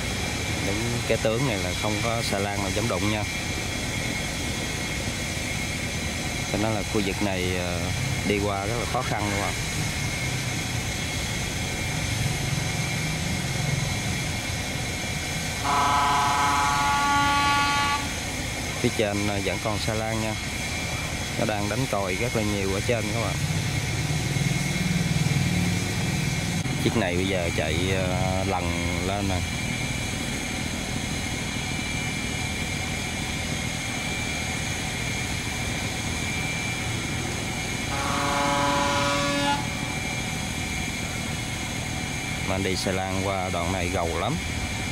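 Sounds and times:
diesel engine rumbling: 0.0 - 44.9
barge horn blast: 15.6 - 18.2, 37.9 - 40.2.

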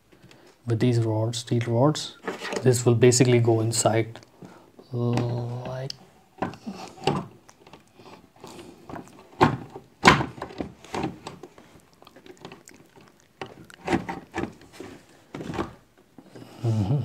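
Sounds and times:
hard knocks and clunks: 8.9 - 11.4.

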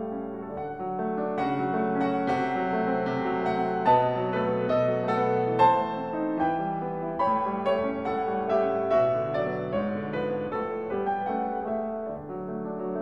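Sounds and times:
piano melody: 0.0 - 13.0.

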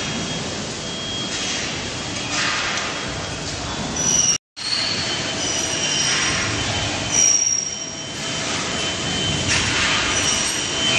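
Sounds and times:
factory machinery noise: 0.0 - 10.9
high-pitched squeals: 4.0 - 10.9.

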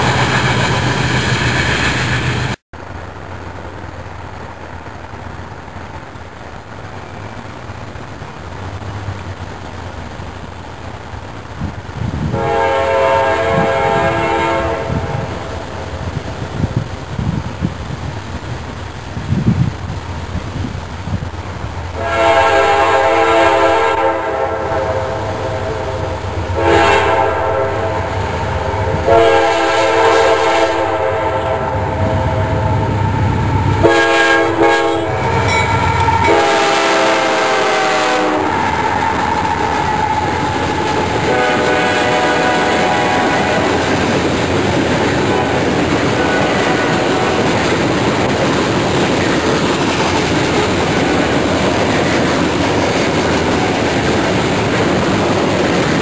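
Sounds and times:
locomotive engine rumbling: 0.0 - 56.0
rail cars clattering: 0.0 - 56.0
locomotive air horn blasts: 12.3 - 15.6, 22.0 - 43.9, 45.2 - 47.5.

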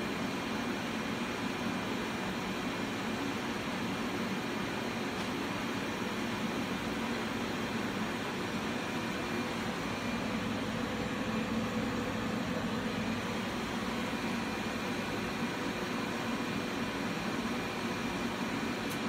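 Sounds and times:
cooling fans whirring: 0.0 - 19.0.

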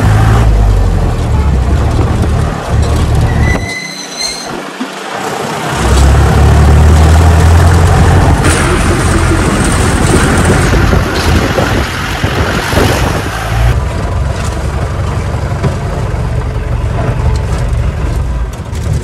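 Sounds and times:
wind and road noise: 0.0 - 19.0
car engine running: 4.8 - 19.0.

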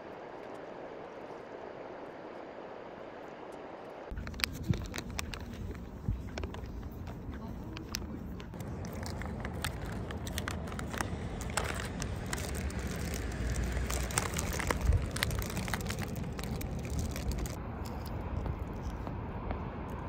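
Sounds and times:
steady low rumble: 0.0 - 20.0
plastic candy pouch crinkling: 4.1 - 19.0.

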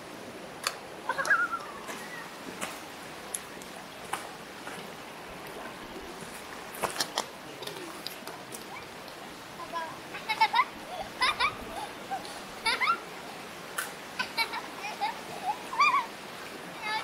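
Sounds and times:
stream rushing: 0.0 - 17.0
wavering high-pitched call: 1.1 - 2.3.

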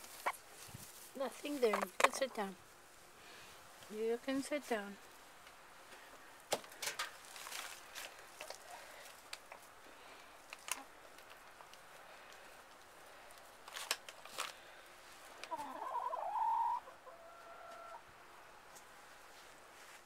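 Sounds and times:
hen calling: 15.5 - 18.0.

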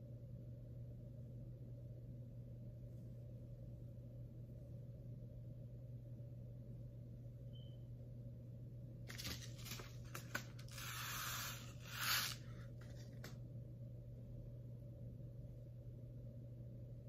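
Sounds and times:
paper packet rustling: 9.1 - 13.3.

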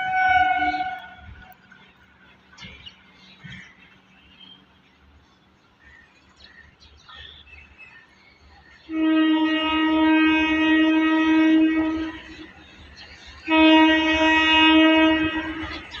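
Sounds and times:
train horn blasts: 0.0 - 1.6, 8.9 - 12.6, 13.4 - 16.0.

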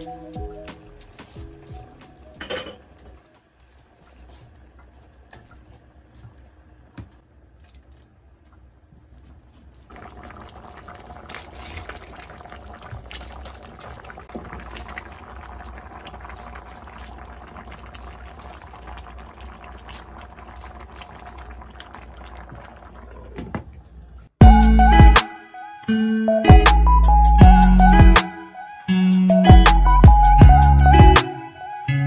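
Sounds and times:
soup boiling and bubbling: 3.5 - 24.3.

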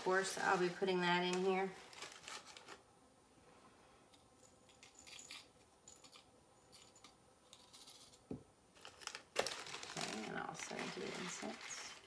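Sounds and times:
plastic bag crinkling: 0.0 - 2.8, 8.8 - 12.0.

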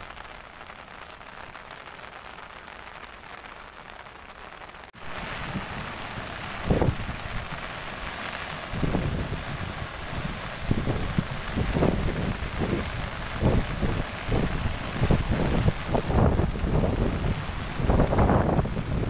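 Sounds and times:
rain on an umbrella: 0.0 - 19.0
rushing rain and surf: 0.0 - 19.0
wind buffeting microphone: 5.2 - 7.6, 8.7 - 19.0.

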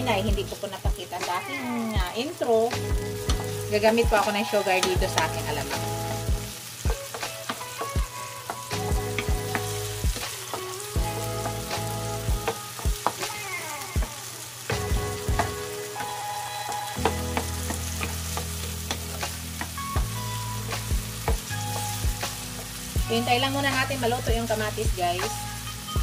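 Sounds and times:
food sizzling in a pan: 0.0 - 26.0
utensil clacking against pan: 17.0 - 19.8.

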